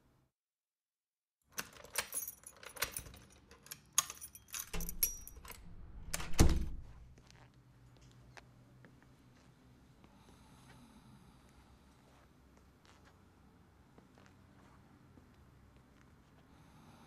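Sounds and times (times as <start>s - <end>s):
metallic rattles and clicks: 1.6s - 6.4s.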